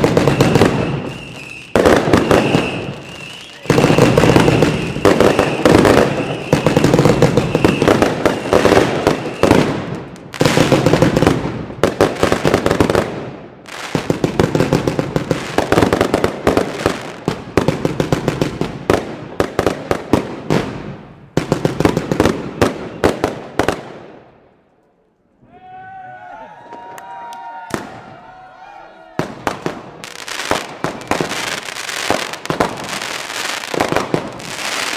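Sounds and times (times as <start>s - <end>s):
high steady whistle: 0.0s - 9.7s
fireworks crackling and popping: 0.0s - 25.3s, 29.2s - 34.9s.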